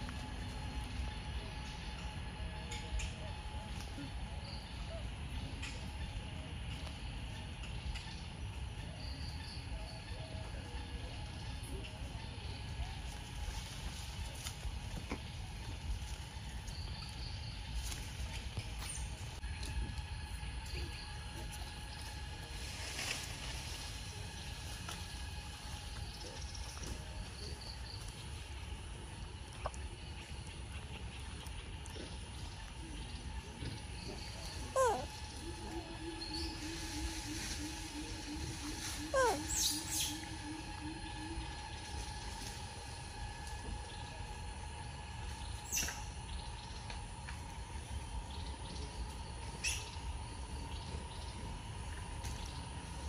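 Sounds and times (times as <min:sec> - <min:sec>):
steady low rumble: 0:00.0 - 0:53.0
bird hooting low note: 0:32.9 - 0:46.6.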